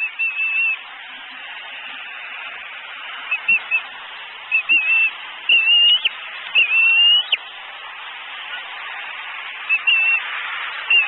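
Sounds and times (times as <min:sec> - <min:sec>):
eagle chirping calls: 0:00.0 - 0:00.8, 0:03.2 - 0:07.5, 0:09.6 - 0:11.0
steady hiss: 0:00.0 - 0:11.0.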